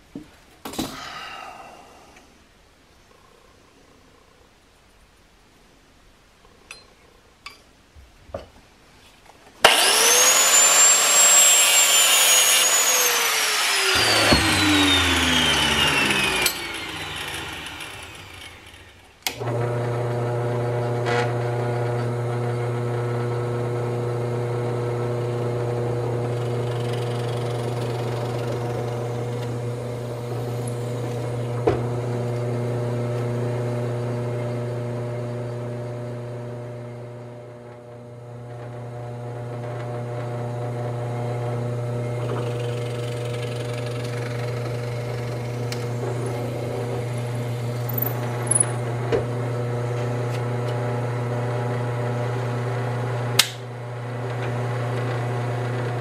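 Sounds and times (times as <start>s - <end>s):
drill press drilling wood: 9.6s - 33.3s, 42.0s - 50.9s
machine spinning down: 9.7s - 19.8s, 25.5s - 31.5s, 42.1s - 49.0s.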